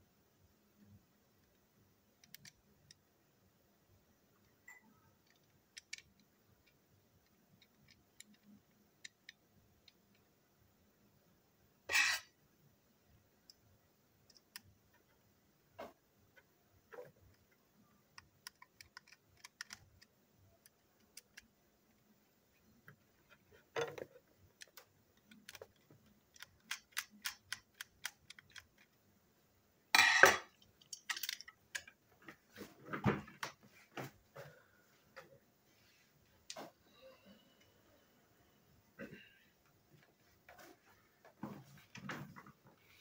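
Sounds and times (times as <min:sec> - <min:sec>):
metal parts clattering on table: 0:30.0 - 0:31.5.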